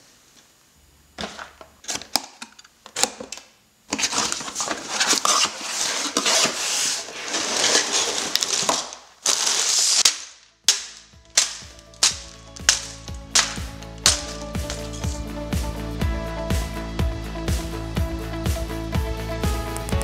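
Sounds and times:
plastic bricks rattling: 1.8s - 15.2s
plastic bags crinkling: 3.9s - 15.3s.

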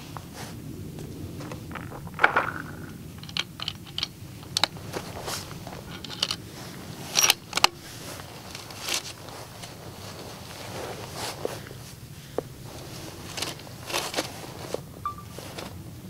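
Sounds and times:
rifle bolt and cartridges clicking: 1.7s - 6.4s, 7.1s - 7.9s.

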